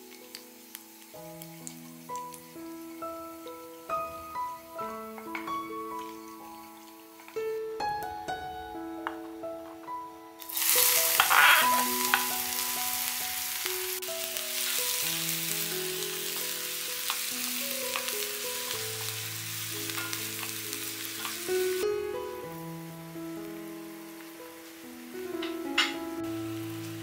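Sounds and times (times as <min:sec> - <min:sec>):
onion sizzling in hot oil: 0:00.0 - 0:07.7, 0:10.4 - 0:27.0
wooden spatula scraping pan: 0:11.2 - 0:12.3.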